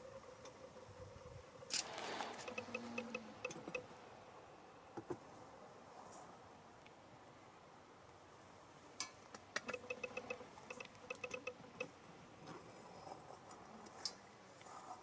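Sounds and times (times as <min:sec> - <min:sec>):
sharp clicks: 0:02.4 - 0:03.8, 0:09.6 - 0:11.9.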